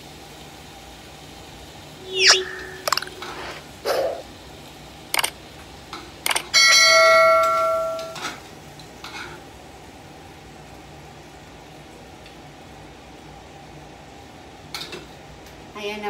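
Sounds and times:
clicks: 0:02.0 - 0:03.6, 0:06.3 - 0:06.5
notification bell chime: 0:06.7 - 0:08.2.

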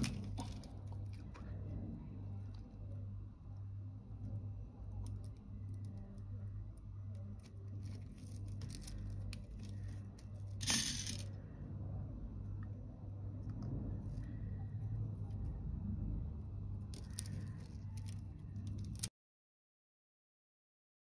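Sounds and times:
steady low hum: 0:00.0 - 0:19.1
beads clicking and rustling: 0:07.2 - 0:11.3, 0:16.9 - 0:19.1.

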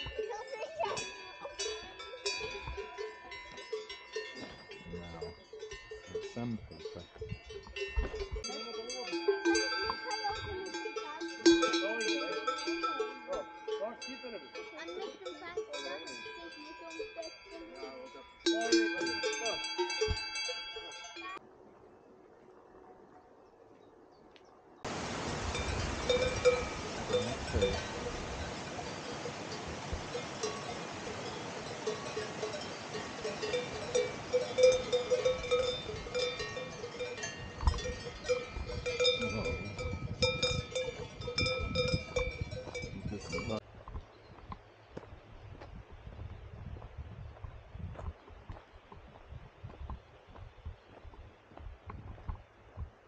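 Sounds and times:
cowbells clanking: 0:00.0 - 0:21.4, 0:25.1 - 0:43.6.

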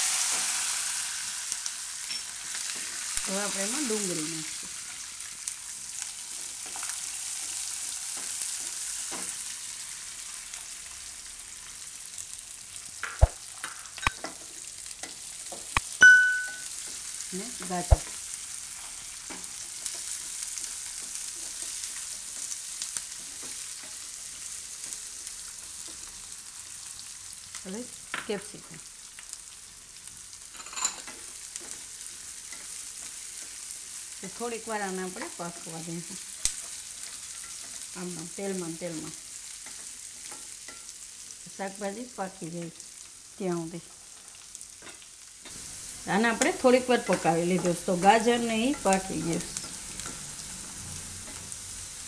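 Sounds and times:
onions sizzling in hot oil: 0:00.0 - 0:52.0
short ringing ding: 0:16.0 - 0:16.7.

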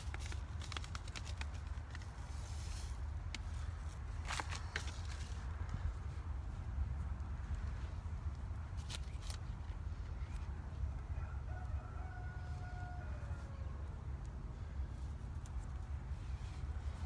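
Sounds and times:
rooster crowing: 0:11.1 - 0:13.9.

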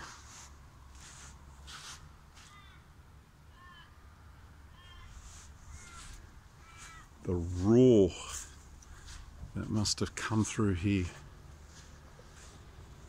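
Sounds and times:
crow cawing: 0:04.8 - 0:07.2.

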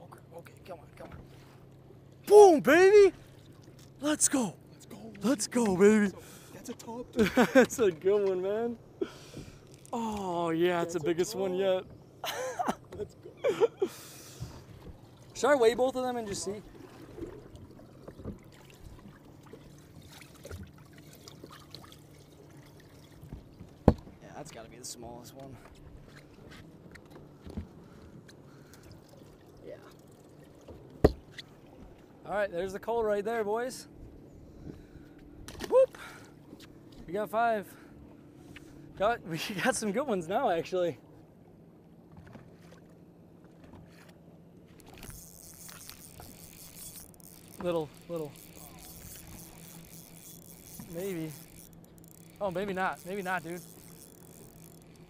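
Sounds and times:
water lapping at hull: 0:00.0 - 0:55.0
water trickling: 0:15.0 - 0:23.8, 0:44.8 - 0:55.0
steady low hum: 0:33.8 - 0:55.0
spinning reel clicks: 0:45.0 - 0:55.0.

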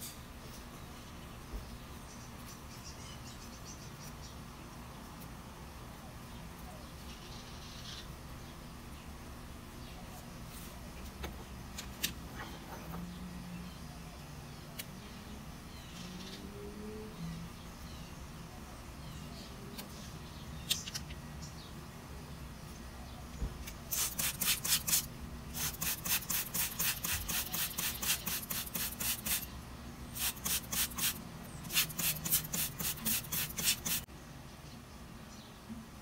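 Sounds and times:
spray bottle spritzing: 0:23.9 - 0:29.5, 0:30.2 - 0:34.1.

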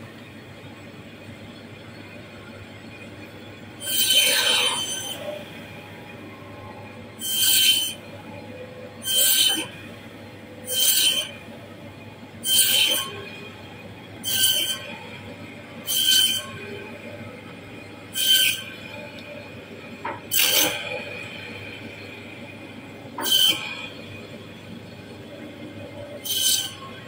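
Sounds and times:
saw blade screeching: 0:03.8 - 0:05.4, 0:07.2 - 0:08.0, 0:09.0 - 0:09.7, 0:10.6 - 0:11.4, 0:12.4 - 0:13.3, 0:14.2 - 0:14.9, 0:15.8 - 0:16.6, 0:18.2 - 0:18.8, 0:20.3 - 0:20.9, 0:23.2 - 0:24.0, 0:26.2 - 0:26.9.

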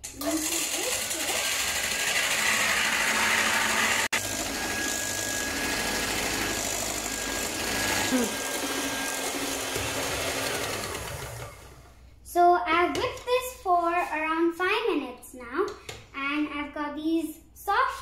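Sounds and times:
electric hand mixer whipping cream: 0:00.1 - 0:11.9.

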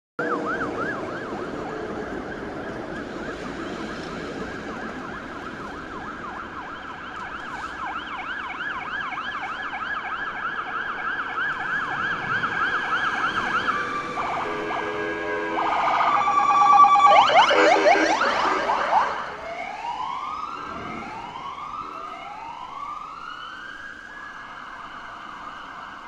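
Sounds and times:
ambulance siren yelping: 0:00.2 - 0:26.0
traffic noise: 0:00.2 - 0:26.0
higher-pitched yelping siren: 0:07.9 - 0:23.5.

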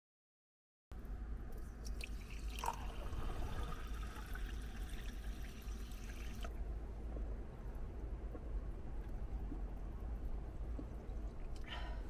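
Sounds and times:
liquid pouring into a glass: 0:01.9 - 0:06.5.

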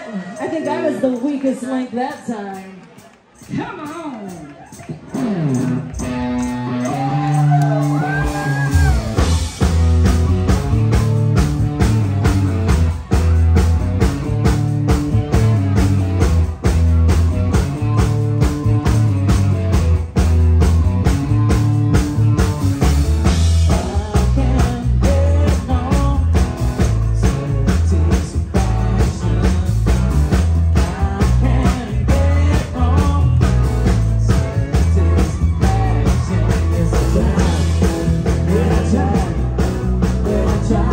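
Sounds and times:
drum kit beat: 0:00.4 - 0:40.9
electric guitar: 0:02.5 - 0:40.9
heavy bass line: 0:05.0 - 0:40.9
person singing: 0:23.6 - 0:40.9.

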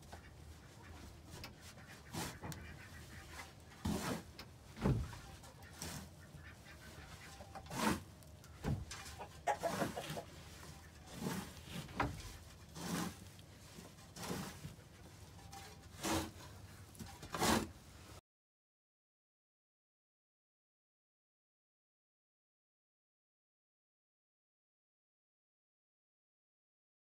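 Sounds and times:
scraping coop bedding by hand: 0:00.0 - 0:18.2
chickens clucking: 0:00.1 - 0:04.3, 0:05.0 - 0:13.3
straw bedding rustling: 0:09.0 - 0:16.4.

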